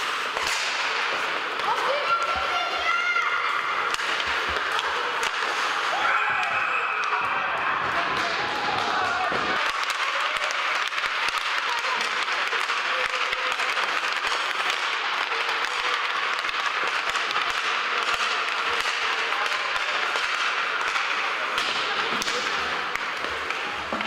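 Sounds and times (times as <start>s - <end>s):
crowd applause: 7.2s - 18.5s.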